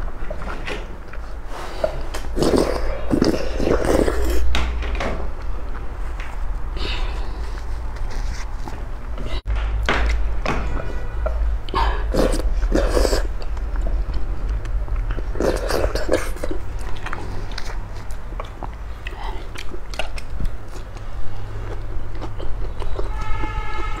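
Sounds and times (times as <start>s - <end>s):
noodles slurping: 1.2s - 4.5s, 11.7s - 24.0s
wet chewing and smacking: 11.2s - 24.0s.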